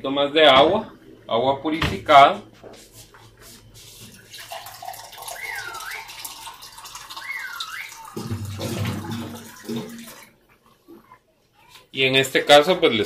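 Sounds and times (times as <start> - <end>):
water pouring into a pot: 4.2 - 10.4.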